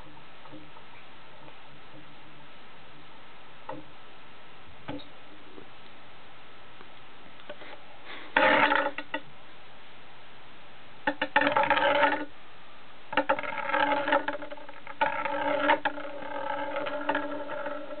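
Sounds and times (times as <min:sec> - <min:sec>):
spinning top rattling and scraping: 0:08.3 - 0:09.2, 0:11.1 - 0:12.3, 0:13.2 - 0:18.0.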